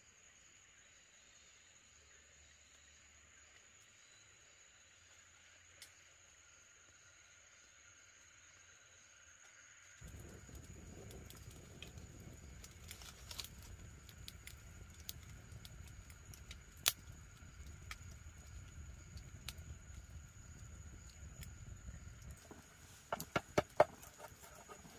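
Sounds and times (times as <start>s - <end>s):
campfire flames rumbling: 10.0s - 24.9s
fire crackles and pops: 10.0s - 24.9s.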